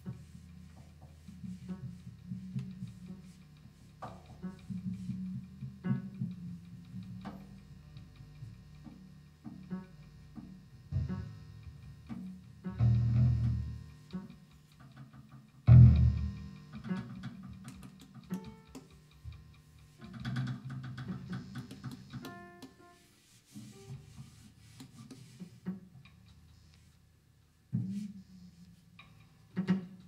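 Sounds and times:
low plucked guitar note: 15.7s - 17.1s.

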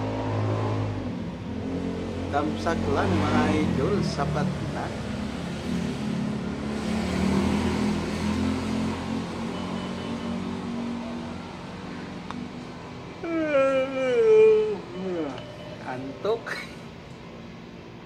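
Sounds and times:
man yawning: 13.2s - 15.5s.

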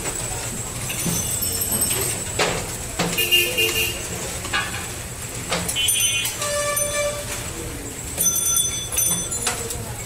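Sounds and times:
street traffic rumbling: 0.0s - 10.0s
vehicle horn toots: 3.2s - 4.0s, 5.8s - 7.3s.

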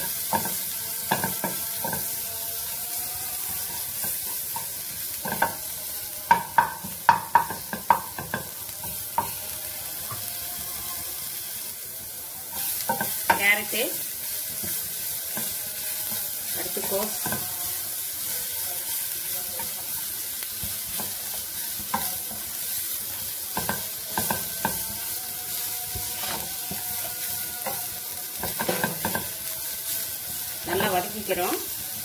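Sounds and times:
vegetables sizzling in oil: 0.0s - 32.0s
spatula knocking on pan: 6.3s - 8.6s, 28.4s - 29.3s
spatula scraping pan: 12.5s - 29.6s.

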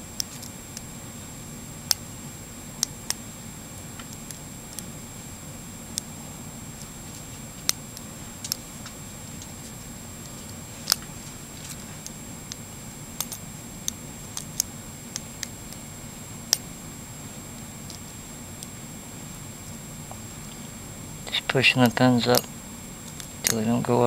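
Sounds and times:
faint steady hum: 0.0s - 24.0s
lock pins clicking: 13.2s - 15.8s, 23.1s - 23.7s.

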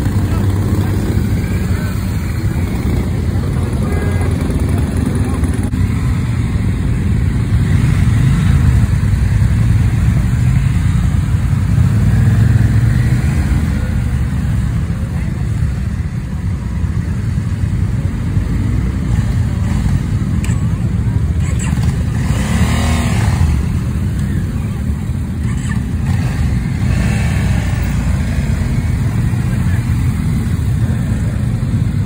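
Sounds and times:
motorcycle engines rumbling: 0.0s - 32.0s
motorcycle revving past: 21.8s - 23.9s, 26.0s - 29.6s.

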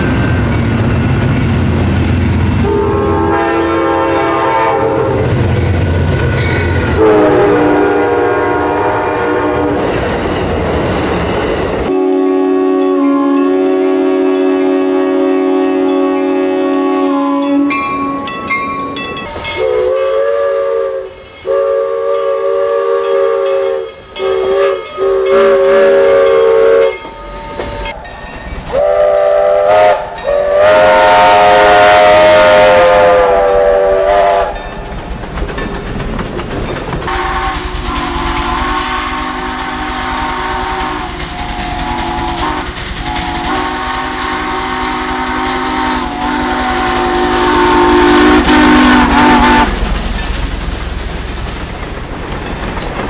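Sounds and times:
passing train rumble: 0.0s - 53.0s
train whistle blasts: 2.6s - 5.3s, 6.3s - 9.8s, 11.9s - 18.2s, 19.5s - 27.9s, 28.7s - 34.6s, 37.1s - 49.8s.

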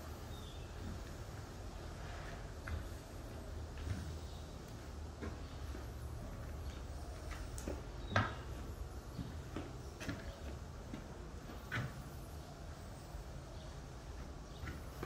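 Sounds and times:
footsteps on bare floor: 0.7s - 12.4s.

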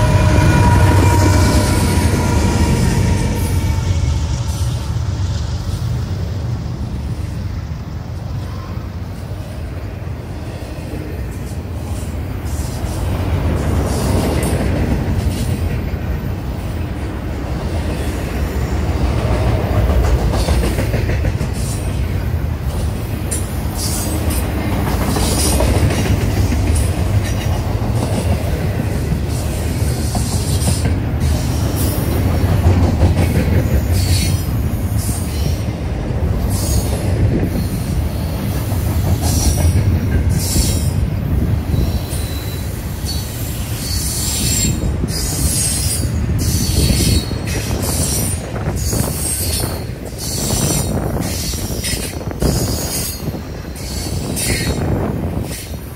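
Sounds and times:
high-pitched wheel squeals: 0.0s - 4.5s, 41.7s - 54.8s
freight train rumbling on rails: 0.0s - 55.9s.

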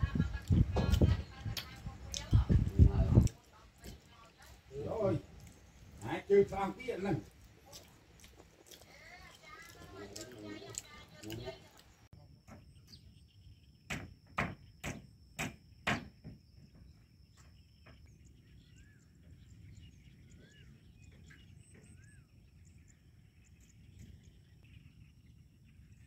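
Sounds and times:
sharp knocks: 13.9s - 16.4s.

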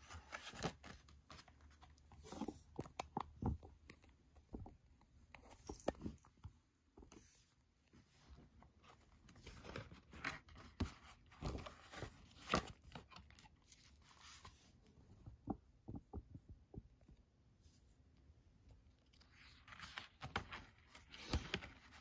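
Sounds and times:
paper pages rustling: 0.0s - 2.6s, 19.0s - 22.0s.

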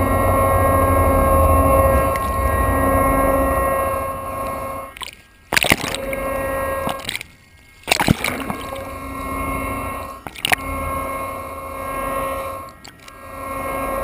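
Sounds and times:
underwater machinery hum: 0.0s - 14.0s
sharp splashes: 0.1s - 11.1s
water sloshing and slapping: 1.0s - 11.1s.

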